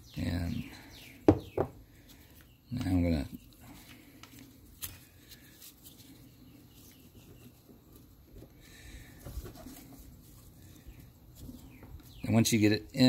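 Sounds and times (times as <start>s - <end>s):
gloved hands rustling: 1.9s - 12.2s.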